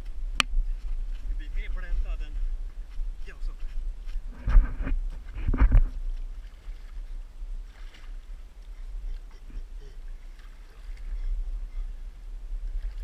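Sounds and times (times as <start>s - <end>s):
microphone handling noise: 0.0s - 6.4s
low wind rumble: 0.0s - 13.0s
water sloshing around body: 0.0s - 13.0s.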